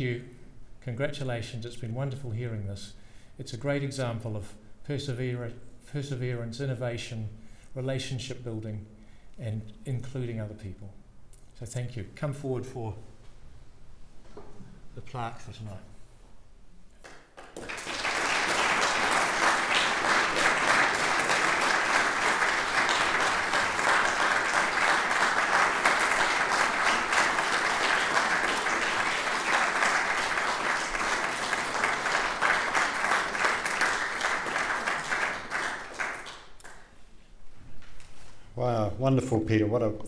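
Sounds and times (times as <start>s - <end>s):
audience applauding: 17.0s - 36.8s.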